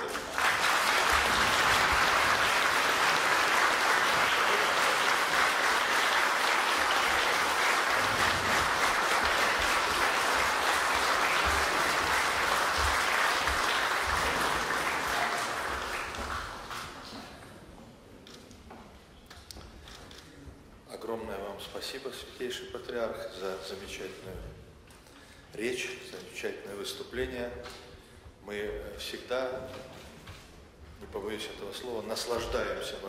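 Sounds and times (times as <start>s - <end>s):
audience applauding: 0.0s - 17.4s.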